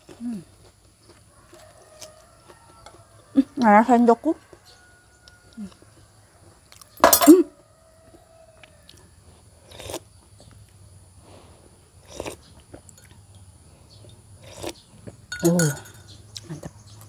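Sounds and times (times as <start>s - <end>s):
crunching and chewing: 0.0s - 17.0s.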